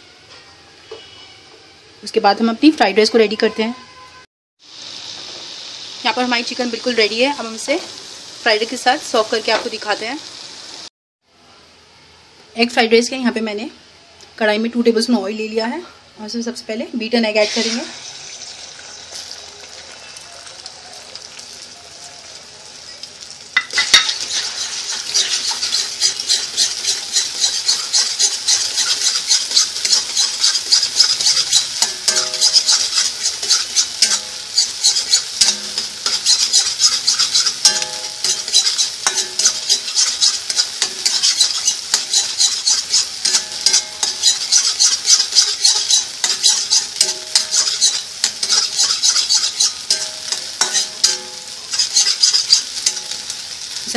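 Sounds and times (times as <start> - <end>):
egg sizzling in oil: 4.6 - 10.9, 17.2 - 53.9
spatula scraping pan: 17.4 - 18.2, 23.6 - 53.2.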